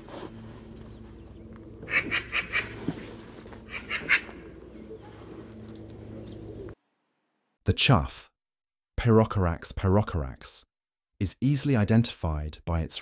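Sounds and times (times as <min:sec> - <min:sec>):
low background hum: 0:00.0 - 0:06.8.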